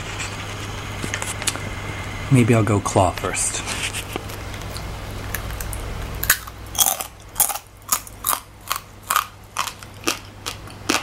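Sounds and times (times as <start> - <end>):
crunching chews on shell: 4.7 - 11.0.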